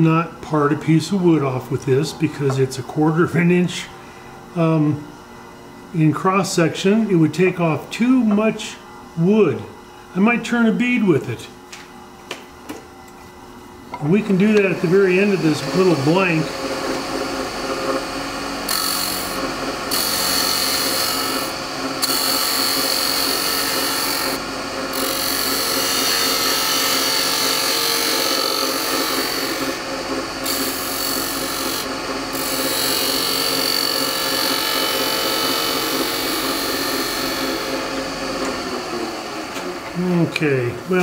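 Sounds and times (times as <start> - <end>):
lathe hum: 13.6 - 41.0
lathe tool scraping wood: 14.0 - 40.0.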